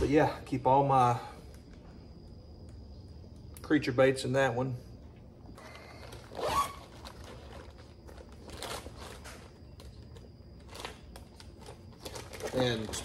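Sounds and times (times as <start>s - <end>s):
plastic bait packs handled: 5.6s - 13.0s
zipper being drawn: 6.3s - 7.0s.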